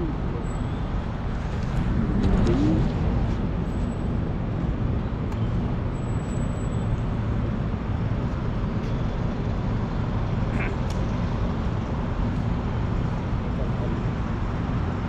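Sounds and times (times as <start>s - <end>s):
low rumble of city traffic: 0.0s - 15.0s.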